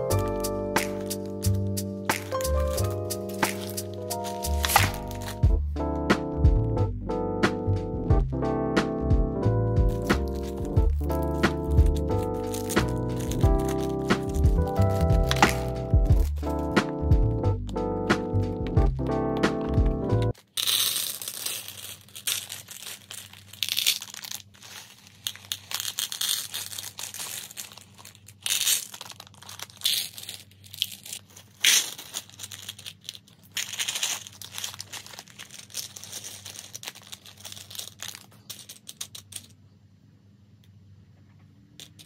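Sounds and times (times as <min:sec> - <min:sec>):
plastic bags crinkling: 0:00.0 - 0:05.5, 0:09.9 - 0:17.0, 0:18.6 - 0:39.6
plastic beads rattling into box: 0:00.0 - 0:05.5, 0:09.9 - 0:39.6, 0:41.8 - 0:42.0
background music: 0:00.0 - 0:20.3.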